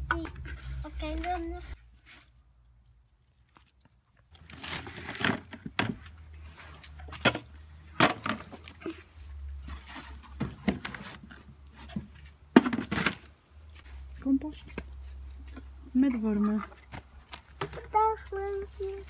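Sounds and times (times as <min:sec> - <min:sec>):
plastic buckets knocking: 0:07.0 - 0:09.0, 0:09.6 - 0:13.2, 0:16.5 - 0:18.2.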